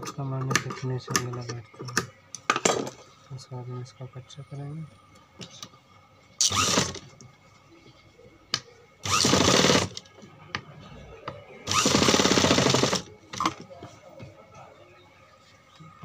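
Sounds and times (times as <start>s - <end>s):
sewing machine stitching: 6.4s - 7.0s, 9.0s - 10.0s, 11.7s - 13.5s.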